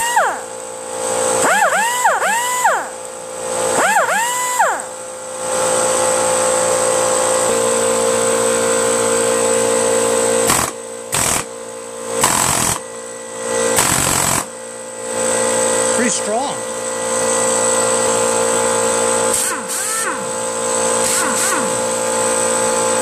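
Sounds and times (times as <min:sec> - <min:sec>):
air compressor humming: 0:00.0 - 0:23.0
pneumatic cut-off tool whine: 0:00.0 - 0:23.0
air hammer blasts: 0:01.3 - 0:03.0, 0:10.4 - 0:11.6, 0:12.2 - 0:12.9, 0:13.6 - 0:14.6, 0:19.2 - 0:20.2, 0:21.0 - 0:21.9.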